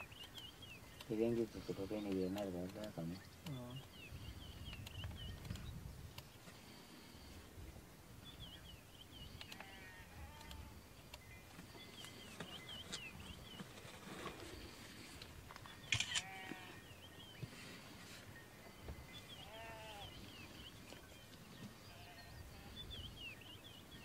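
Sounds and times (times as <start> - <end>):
faint bird chirping: 0.0 - 24.0
sharp click: 15.8 - 16.3.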